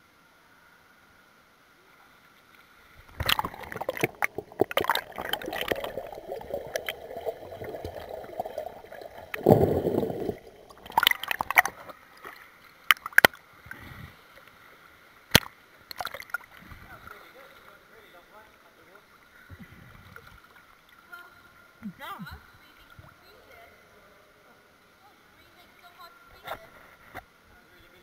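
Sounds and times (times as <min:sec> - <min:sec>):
water gurgling and sloshing: 0:02.6 - 0:17.6
rush of water: 0:03.0 - 0:14.2.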